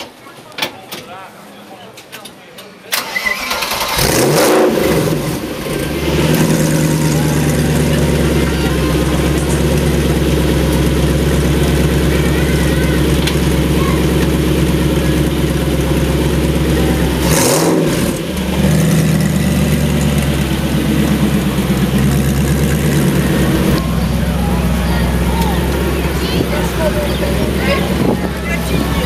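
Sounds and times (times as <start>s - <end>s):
car engine idling: 3.1s - 29.0s.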